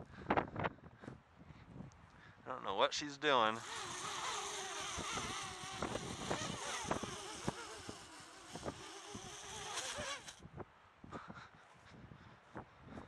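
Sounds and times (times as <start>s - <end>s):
drone motors whining: 3.6s - 10.4s
wind thumping on microphone: 4.3s - 11.4s.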